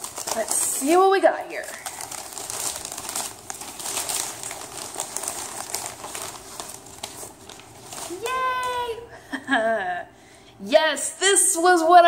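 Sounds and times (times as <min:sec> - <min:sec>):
newspaper crinkling and rustling: 0:00.0 - 0:09.0.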